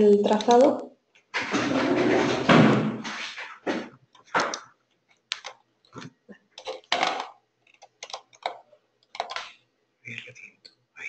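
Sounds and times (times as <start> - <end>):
keyboard and mouse clicking: 4.2 - 9.6.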